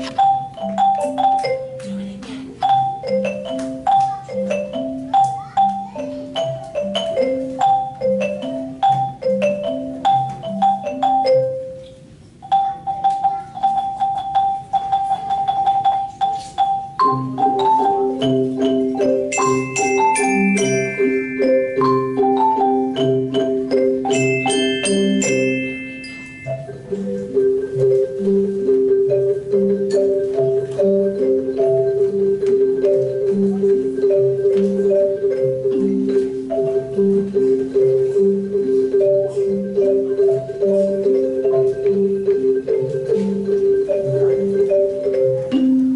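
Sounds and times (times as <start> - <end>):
wooden xylophone ensemble: 0.0 - 45.9
high bell-like notes: 19.3 - 22.4, 24.1 - 26.9.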